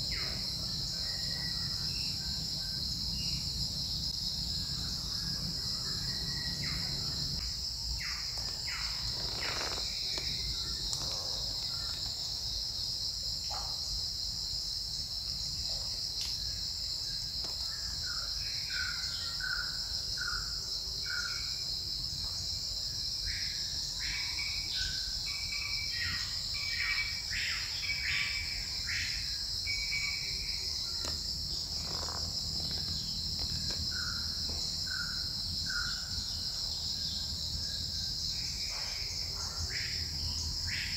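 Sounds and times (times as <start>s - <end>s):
forest insects droning: 0.0s - 40.9s
faint clicks and rustles: 8.3s - 12.2s.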